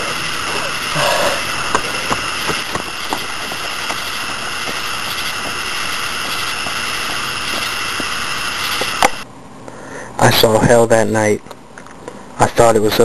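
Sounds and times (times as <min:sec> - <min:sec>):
camcorder hiss: 0:00.0 - 0:09.3.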